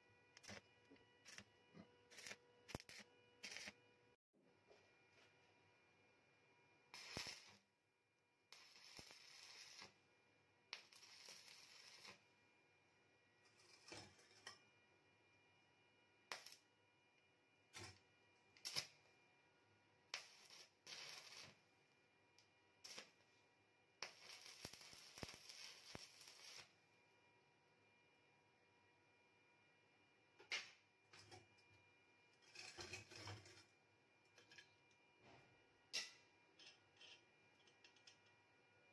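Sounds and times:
arc welding crackling hiss: 2.1s - 3.8s, 6.9s - 7.6s, 8.5s - 10.0s, 10.8s - 12.2s, 18.6s - 19.0s, 20.1s - 21.6s, 22.8s - 23.2s, 24.0s - 26.8s.

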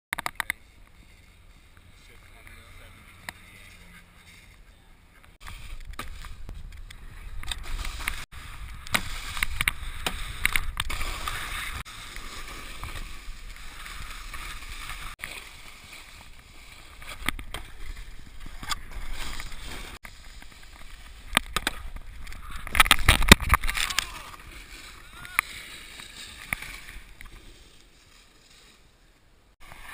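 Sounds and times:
snowboard scraping on snow: 5.4s - 21.3s.

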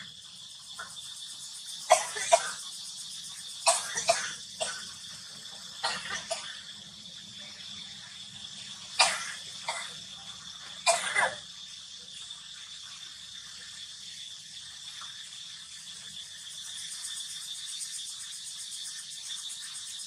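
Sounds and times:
chirping insects drone: 0.0s - 20.0s
short sharp cough-like bursts: 1.9s - 2.6s, 3.6s - 5.0s, 5.8s - 6.7s, 9.0s - 10.0s, 10.8s - 11.4s.

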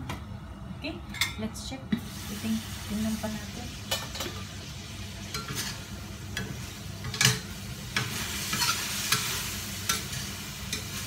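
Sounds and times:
food sizzling in hot pan: 2.0s - 11.0s
spatula scraping a steel wok: 5.3s - 11.0s.

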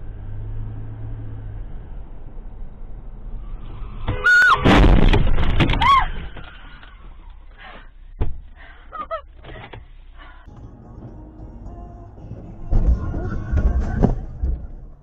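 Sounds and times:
low road rumble: 0.0s - 15.0s
car crash impact and crunching: 4.0s - 6.8s, 12.3s - 15.0s.

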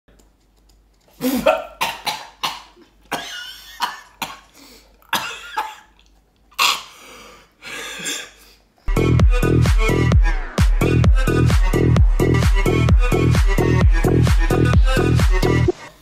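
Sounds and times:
man coughing: 1.2s - 4.5s, 5.1s - 6.0s.

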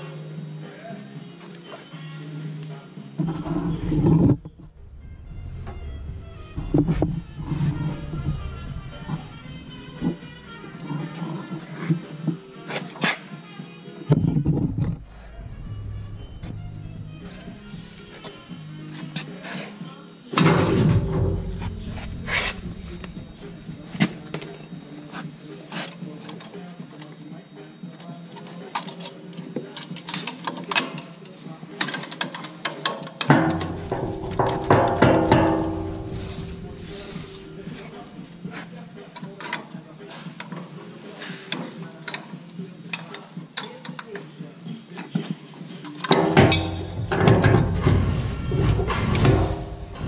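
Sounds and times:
metal scrape: 3.2s - 12.1s, 14.4s - 18.7s, 20.4s - 24.8s, 33.3s - 38.7s, 46.2s - 50.0s
steady low hum: 3.3s - 11.3s, 14.5s - 18.9s, 20.5s - 25.0s, 33.3s - 39.0s.

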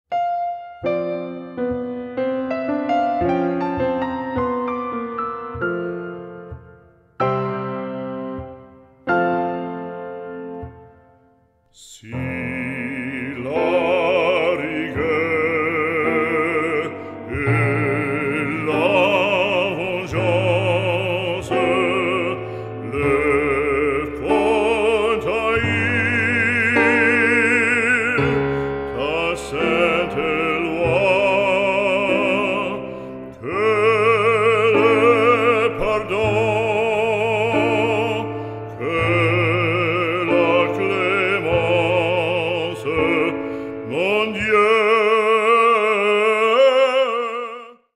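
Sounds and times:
instrumental accompaniment: 0.1s - 46.6s
operatic voice singing: 11.7s - 47.9s.

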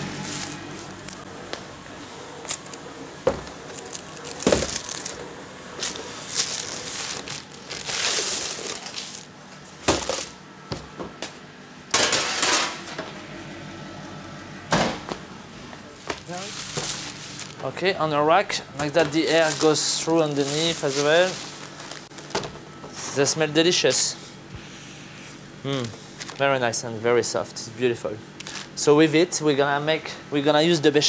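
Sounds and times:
baking paper rustling: 3.4s - 10.4s, 16.0s - 17.9s, 18.8s - 22.4s, 28.4s - 28.8s.

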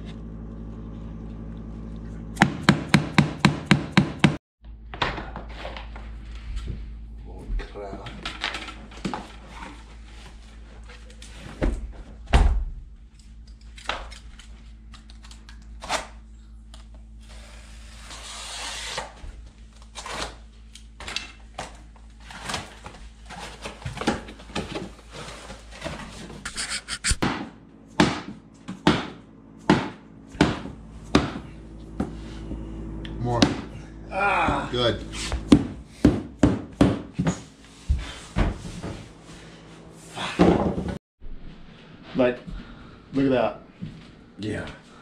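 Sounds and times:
wooden flooring knocks and thuds: 35.5s - 37.4s.

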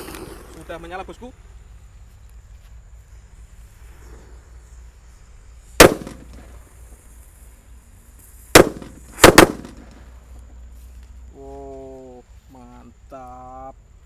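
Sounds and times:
firework fizzing: 3.0s - 10.4s
firework bangs: 5.7s - 7.1s, 8.2s - 10.3s.

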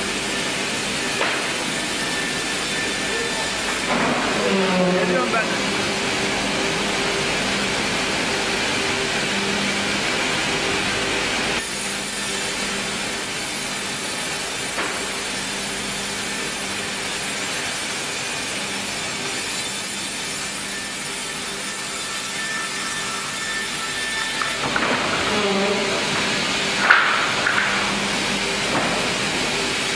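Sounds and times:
low machine hum: 0.0s - 14.6s
band saw sawing timber: 0.1s - 29.8s.

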